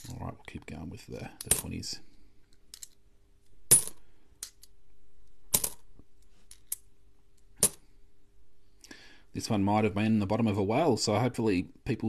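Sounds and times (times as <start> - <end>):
coins clinking: 3.7 - 4.7, 5.5 - 5.8, 7.6 - 7.8.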